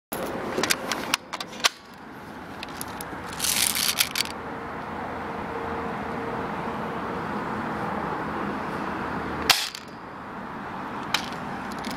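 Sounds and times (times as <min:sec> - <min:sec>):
rustling scrape: 0:02.6 - 0:04.3.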